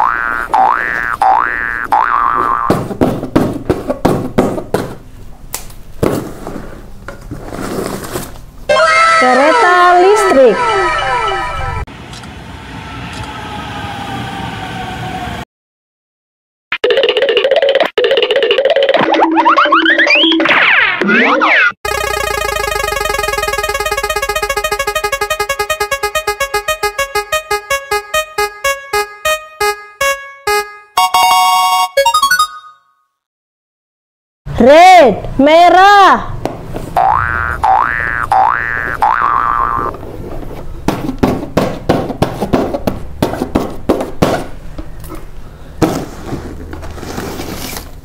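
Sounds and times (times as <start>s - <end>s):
prize wheel electronic ticks: 21.9s - 32.6s.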